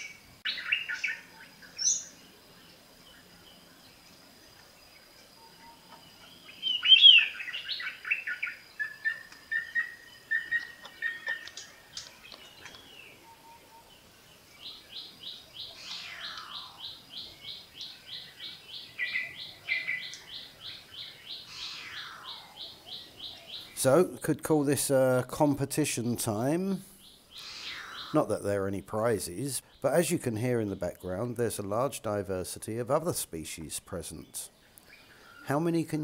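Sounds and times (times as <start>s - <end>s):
bird chattering: 27.3s - 28.4s.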